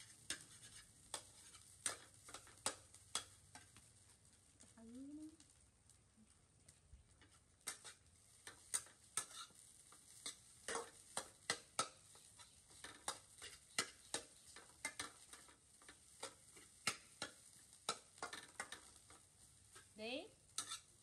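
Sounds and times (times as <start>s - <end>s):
metal spatula scraping pan: 0.0s - 3.7s, 7.6s - 19.9s, 20.5s - 21.0s
faint sizzle of frying rice: 0.0s - 21.0s.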